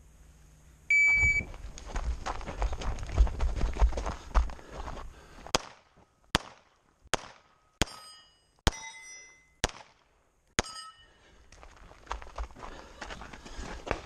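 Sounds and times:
pistol shots: 5.6s - 8.0s, 9.6s - 10.1s
steel target ringing: 7.6s - 9.6s, 10.6s - 11.2s.

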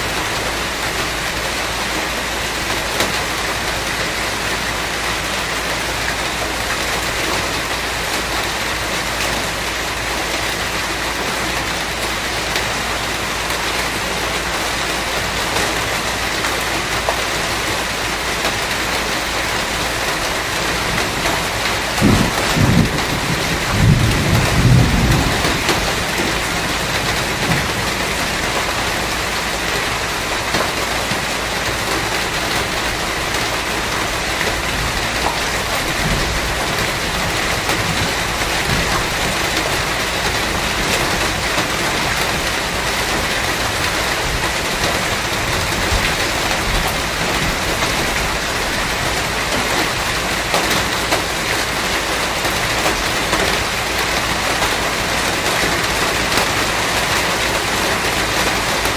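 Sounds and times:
heavy rain splashing: 0.0s - 58.9s
thunder rumble: 20.8s - 28.8s.

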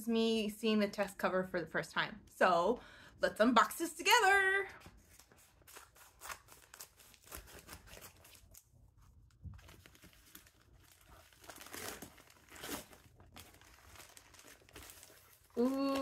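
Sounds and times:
paper bag crinkling: 9.4s - 16.0s.

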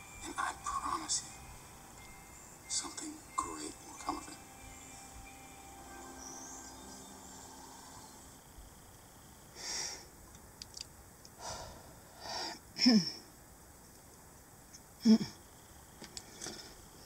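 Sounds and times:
faint clicks: 10.3s - 11.4s
person breathing and sniffing: 11.4s - 12.6s.

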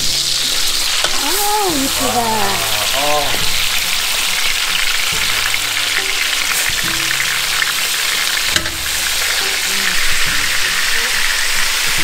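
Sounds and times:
meat sizzling in a pan: 0.0s - 12.0s.

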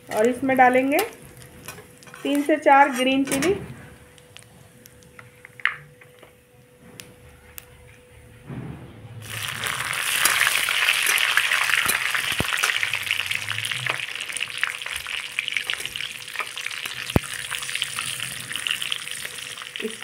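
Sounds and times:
chillies sizzling in hot oil: 0.0s - 4.4s, 9.2s - 20.0s.

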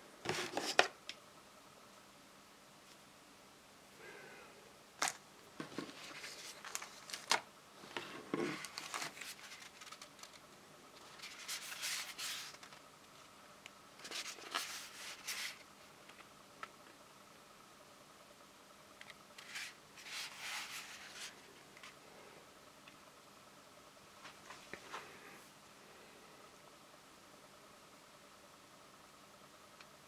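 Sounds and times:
faint steady hum: 0.0s - 30.0s
cardboard rustling and scraping: 0.2s - 0.9s, 5.0s - 10.4s, 11.0s - 12.8s, 14.0s - 15.6s, 19.4s - 22.0s.

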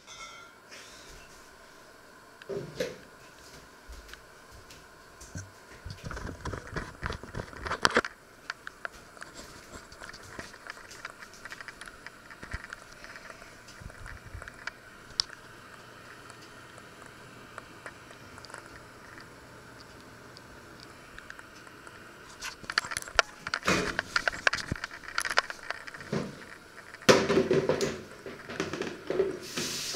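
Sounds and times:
steady hiss: 0.0s - 29.9s
faint clicks and crackles: 4.1s - 27.1s.

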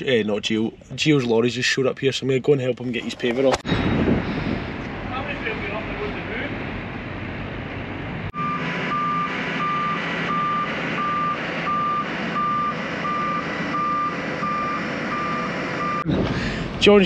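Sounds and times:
vehicle reversing alarm beeping: 8.3s - 16.1s.

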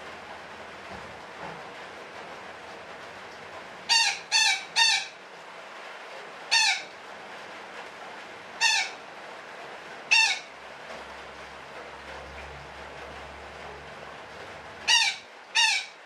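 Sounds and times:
parakeet squawking: 3.9s - 5.1s, 6.5s - 6.9s, 8.6s - 9.0s, 10.1s - 10.5s, 14.9s - 16.0s.

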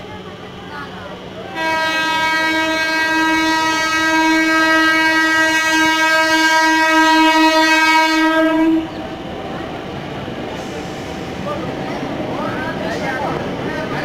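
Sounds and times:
train horn blast: 1.5s - 9.0s.

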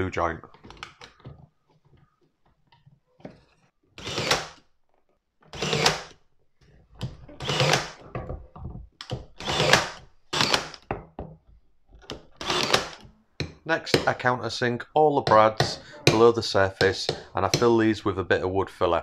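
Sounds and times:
brad nailer firing: 4.0s - 4.6s, 5.5s - 6.2s, 7.4s - 8.0s, 9.3s - 10.9s, 12.4s - 13.0s.

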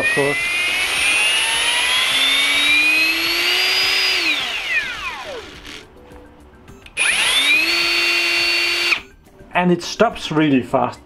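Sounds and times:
hammer drill motor whining: 0.0s - 5.9s, 6.9s - 9.0s.

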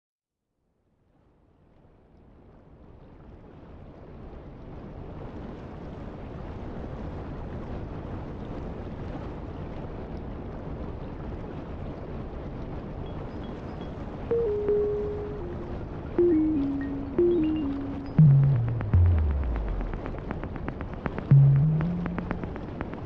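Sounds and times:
low rushing noise: 13.3s - 23.0s.

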